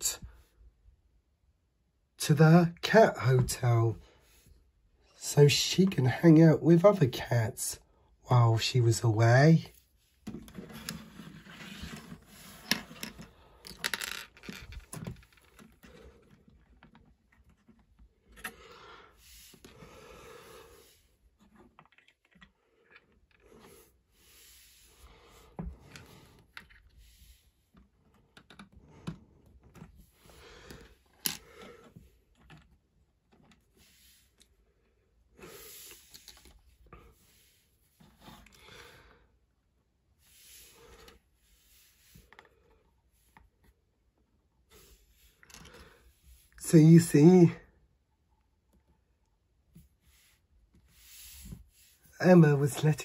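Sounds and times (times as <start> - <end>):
plastic toy bricks clicking and rattling: 12.7 - 15.6.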